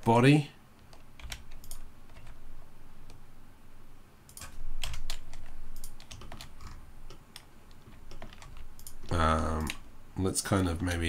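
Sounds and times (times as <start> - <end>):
keyboard typing: 0.8 - 2.4, 4.3 - 9.8.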